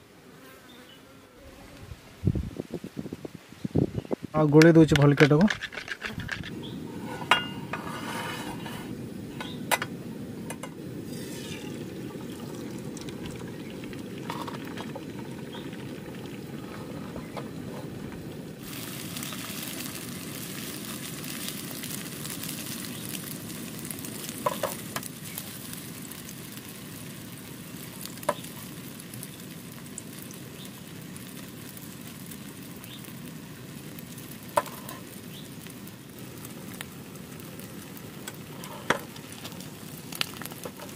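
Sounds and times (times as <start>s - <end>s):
eggs sizzling in pan: 5.0s - 40.9s.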